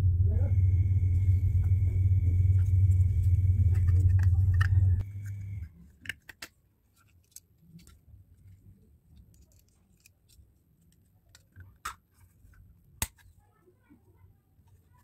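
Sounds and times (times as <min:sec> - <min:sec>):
low rumble: 0:00.0 - 0:05.7.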